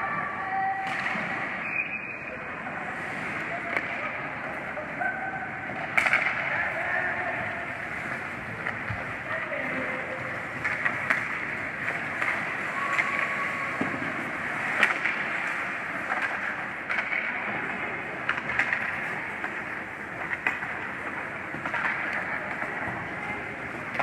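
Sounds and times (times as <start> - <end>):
hockey sticks clacking: 0.7 - 2.1, 3.2 - 4.8, 5.6 - 24.0
skate blades scraping ice: 5.7 - 24.0.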